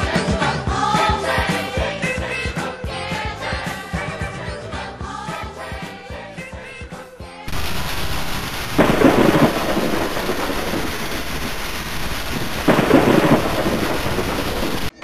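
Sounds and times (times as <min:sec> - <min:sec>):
rain falling: 0:07.5 - 0:15.0
thunder rolling: 0:07.5 - 0:15.0.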